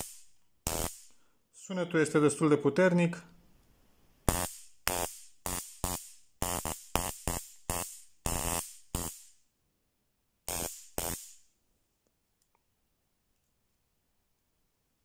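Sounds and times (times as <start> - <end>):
stun gun buzzing: 0.0 - 1.2, 4.3 - 9.4, 10.5 - 11.5.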